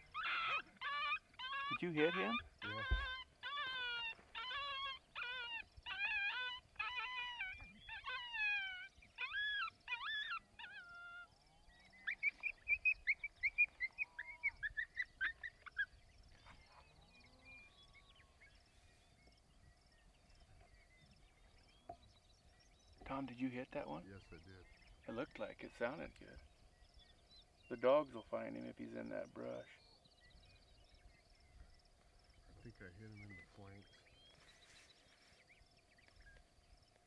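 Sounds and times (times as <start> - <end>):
coyote howling and yipping: 0.0 - 21.8.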